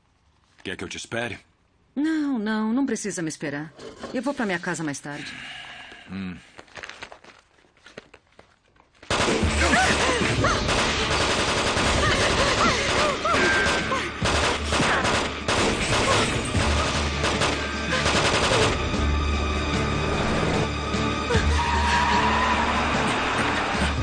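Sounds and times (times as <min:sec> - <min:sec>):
automatic gunfire: 0:09.1 - 0:18.8.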